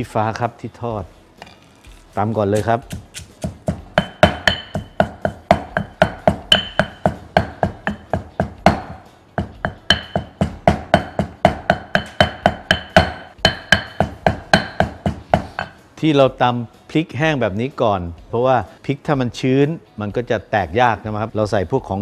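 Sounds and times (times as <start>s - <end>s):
pestle pounding in stone mortar: 2.4s - 15.8s.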